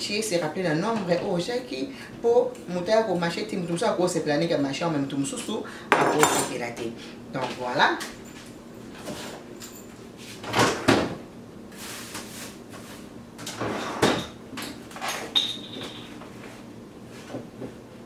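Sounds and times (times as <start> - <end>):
items knocking and rattling: 15.0 - 16.3.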